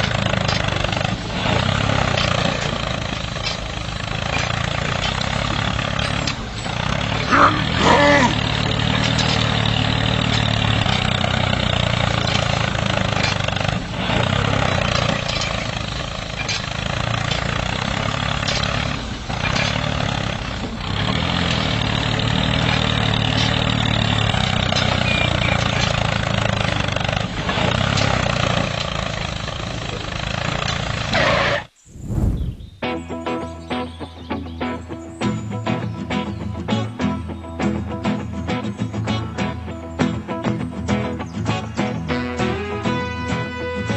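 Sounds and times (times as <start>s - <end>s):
model tractor engine drone: 0.0s - 31.7s.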